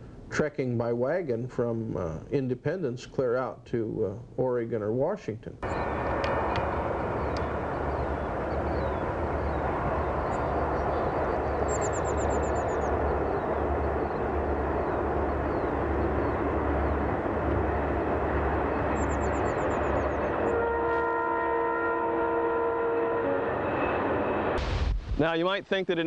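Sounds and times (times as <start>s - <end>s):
bird trilling: 5.6s - 17.1s, 18.7s - 20.4s
freight train rumbling: 5.6s - 24.6s.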